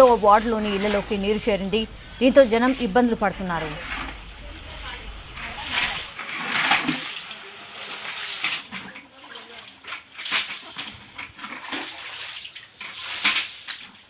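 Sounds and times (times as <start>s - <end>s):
water sloshing: 0.0s - 13.5s
sharp water splash: 3.7s - 13.9s.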